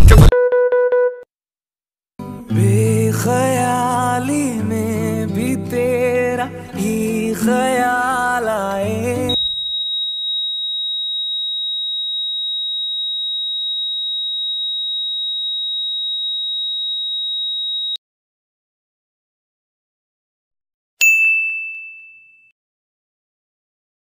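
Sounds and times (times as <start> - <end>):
high-pitched electronic beep tone: 9.3 - 10.5.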